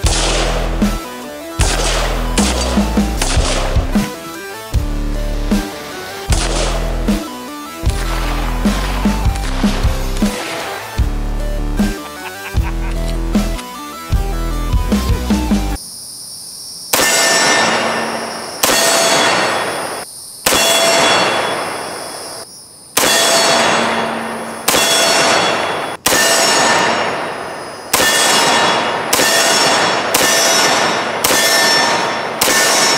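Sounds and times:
rifle shots: 0.0s - 4.7s, 5.4s - 11.1s, 16.9s - 22.1s, 23.0s - 32.9s
steel target ringing clang: 17.0s - 19.8s, 23.0s - 32.9s.

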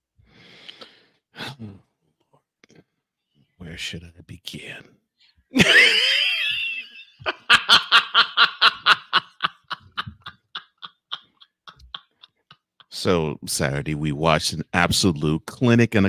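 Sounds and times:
high-pitched laughter: 5.6s - 12.9s.

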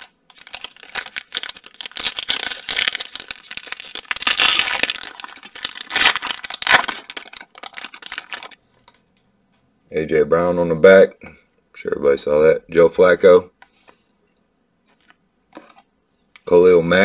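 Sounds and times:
foil wrapper tearing and crinkling: 0.0s - 8.6s.

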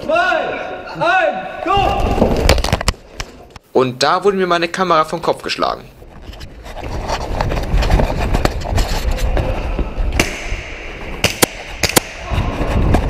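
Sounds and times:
rumbling and rubbing on microphone: 5.8s - 10.2s
sharp cracks: 10.1s - 13.0s.

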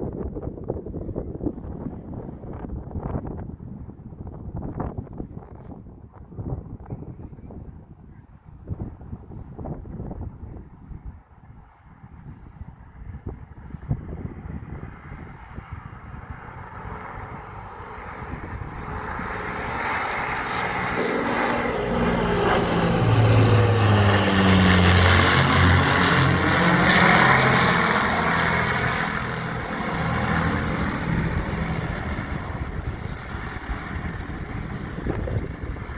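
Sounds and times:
propeller plane flying overhead: 0.0s - 35.9s.

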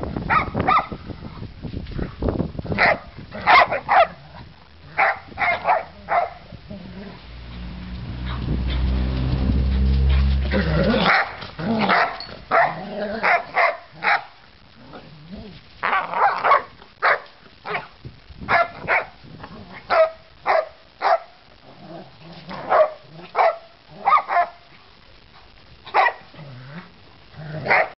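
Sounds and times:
dogs barking: 0.3s - 1.0s, 2.8s - 4.2s, 4.9s - 6.5s, 8.2s - 9.0s, 9.6s - 14.4s, 15.8s - 17.9s, 18.5s - 19.2s, 19.9s - 21.4s, 22.6s - 24.6s, 25.9s - 26.3s, 27.6s - 28.0s.

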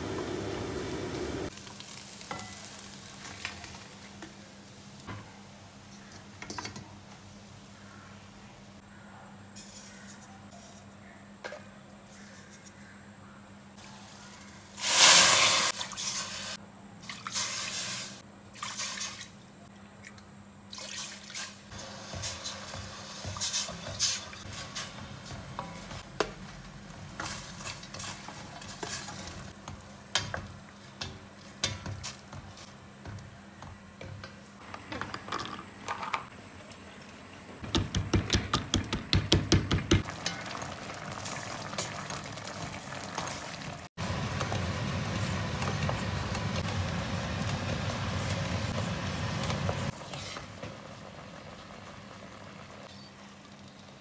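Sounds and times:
wooden spoon stirring and scraping: 21.8s - 35.3s.

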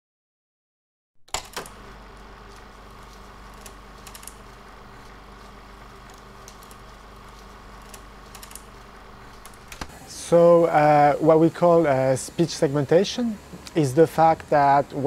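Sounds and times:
low electrical hum: 1.3s - 15.0s.

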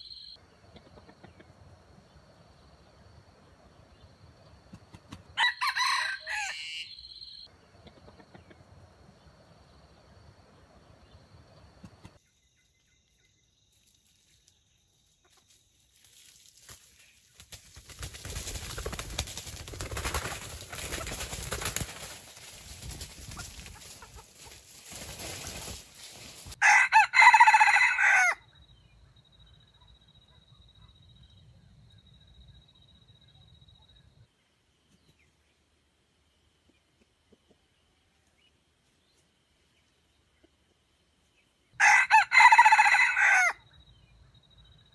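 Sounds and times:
rooster crowing: 5.4s - 7.2s, 26.6s - 28.5s, 41.8s - 43.6s
rustling noise: 15.3s - 26.6s.

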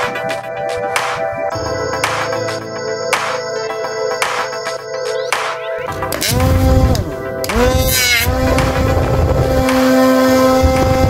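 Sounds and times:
propeller air rumble: 5.8s - 11.0s
small motor whine: 6.2s - 11.0s.

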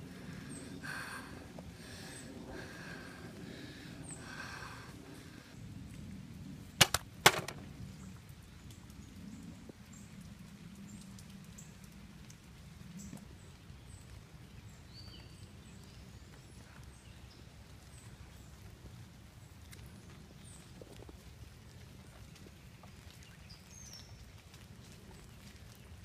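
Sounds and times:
sharp cracks: 6.8s - 7.7s.

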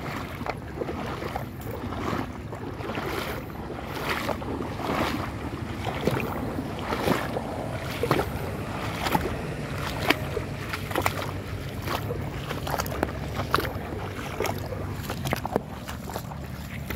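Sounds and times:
water splashing with wading steps: 0.0s - 16.9s.

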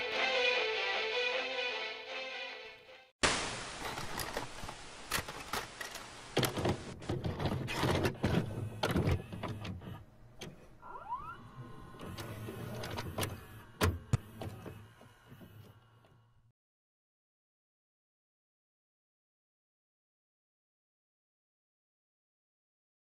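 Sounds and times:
static hiss: 3.2s - 7.0s
tape mechanism clicks and clunks: 3.9s - 10.7s, 11.5s - 16.2s
low motor whirr: 8.1s - 16.5s.

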